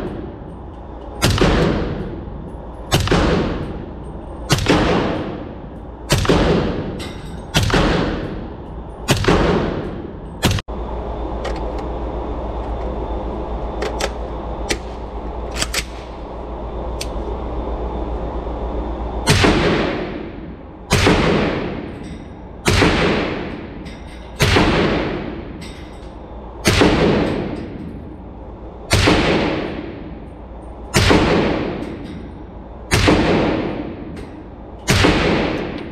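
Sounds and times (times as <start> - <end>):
steady hum: 0.0 - 35.9
suppressed rifle shots with echo: 34.9 - 35.8.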